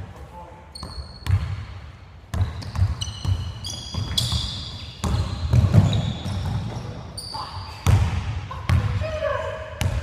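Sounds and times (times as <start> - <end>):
sneakers squeaking on floor: 0.7 - 1.7, 2.3 - 9.0
basketball bouncing on hardwood: 2.3 - 6.8.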